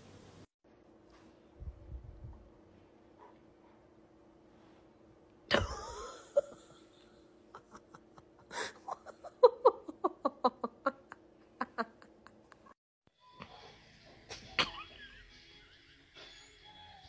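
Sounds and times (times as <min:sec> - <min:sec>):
person laughing: 0:05.5 - 0:12.8, 0:14.3 - 0:15.3.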